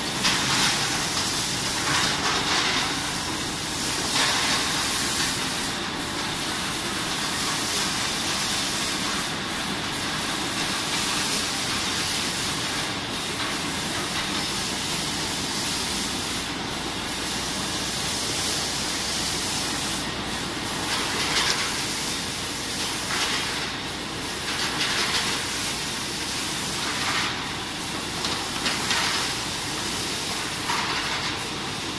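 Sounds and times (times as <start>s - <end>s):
machine with high hiss: 0.0s - 31.9s
sharp air blasts: 0.0s - 31.9s.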